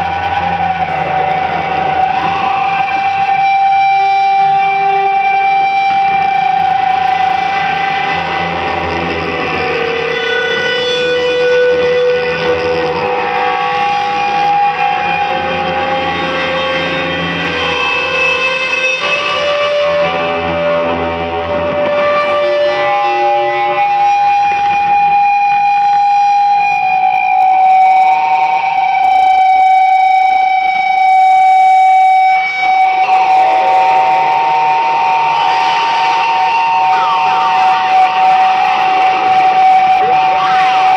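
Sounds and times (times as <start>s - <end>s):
distorted electric guitar drone: 0.0s - 40.9s
keyboard sustained tones: 32.8s - 40.9s.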